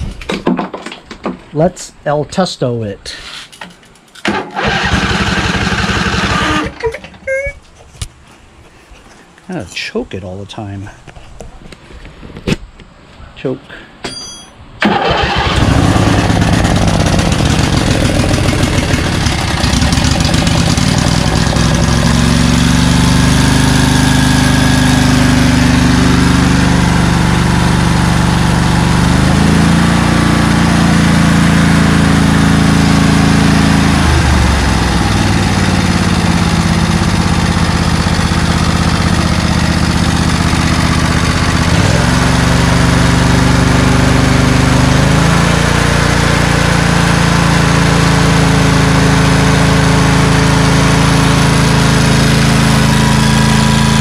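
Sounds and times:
lawn tractor engine running: 4.2s - 6.8s, 14.8s - 54.0s.

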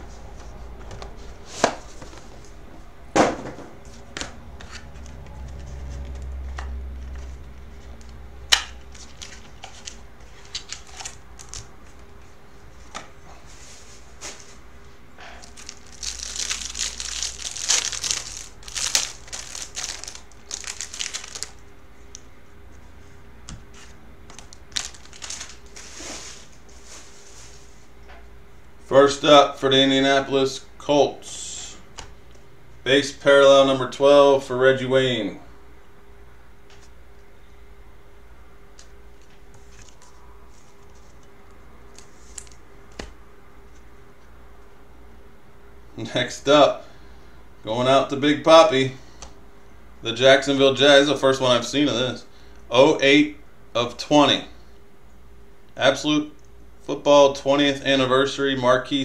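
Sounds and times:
packaging crinkling and rustling: 8.8s - 11.9s, 15.4s - 21.7s, 24.3s - 26.5s.

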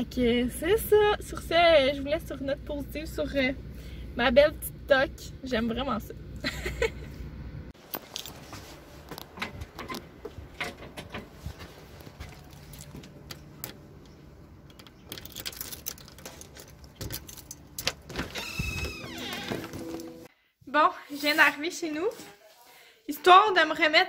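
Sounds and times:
keys jangling: 14.8s - 18.1s.

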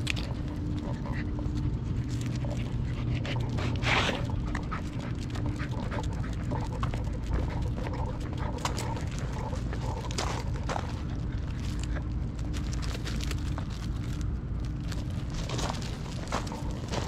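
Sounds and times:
low rumble: 0.0s - 17.0s
dog panting: 0.1s - 12.1s, 15.4s - 17.0s.

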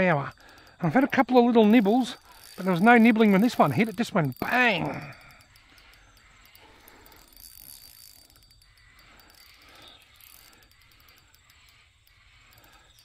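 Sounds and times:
crickets chirping: 0.0s - 13.0s
fishing reel clicking: 0.0s - 13.0s.

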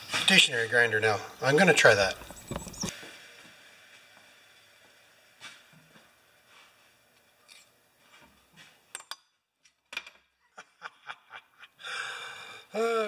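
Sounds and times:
metal piece clinking: 7.5s - 7.7s.

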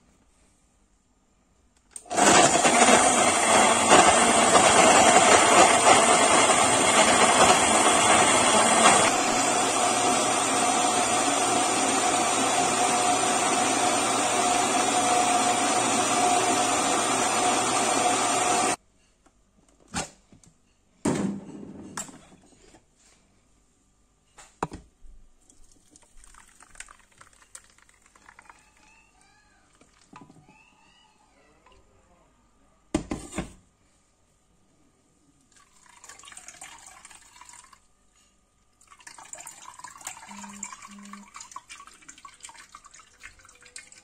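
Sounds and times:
blender running: 2.1s - 18.8s, 40.3s - 41.3s.

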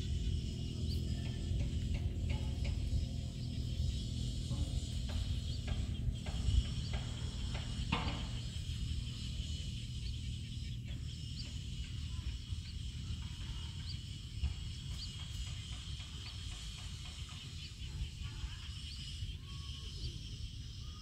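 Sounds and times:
wind rumble on microphone: 0.0s - 11.5s
high-pitched insect drone: 0.0s - 21.0s.

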